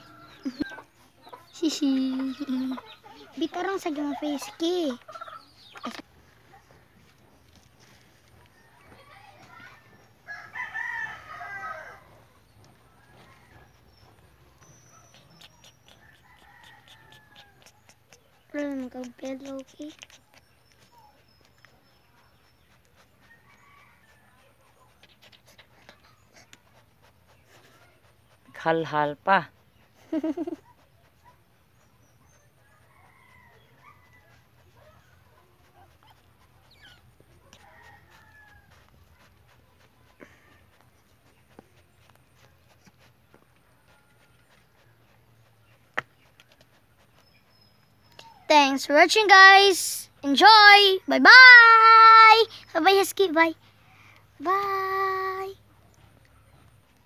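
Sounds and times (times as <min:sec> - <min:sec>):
rooster crowing: 0:10.3 - 0:12.2.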